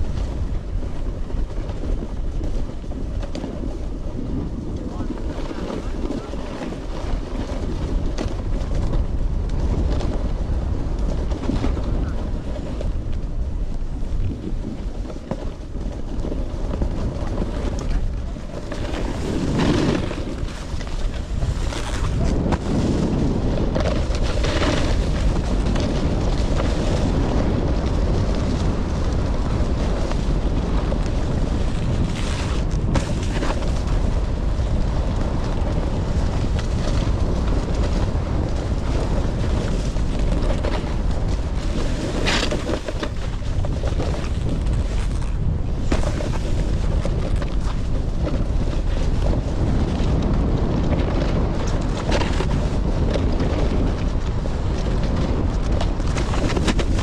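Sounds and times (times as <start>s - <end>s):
snowboard scraping over snow: 0.0s - 57.0s
wind rushing over microphone: 0.0s - 57.0s.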